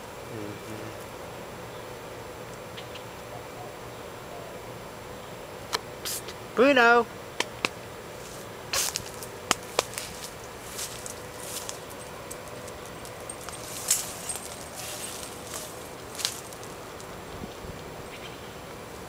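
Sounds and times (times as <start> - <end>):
steady outdoor hiss: 0.0 - 19.0
dry leaves and twigs crackling: 8.2 - 17.3.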